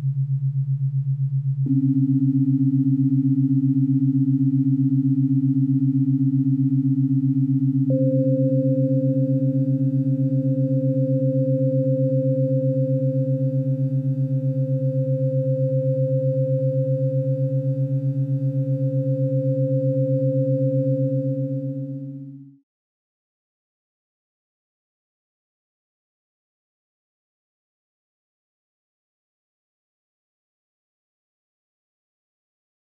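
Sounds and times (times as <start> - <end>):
low pulsing synthesizer drone: 0.0 - 22.6.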